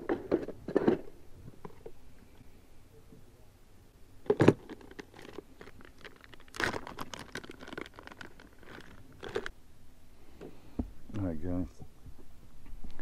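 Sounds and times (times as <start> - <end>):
plastic bag crinkling: 4.3 - 9.5.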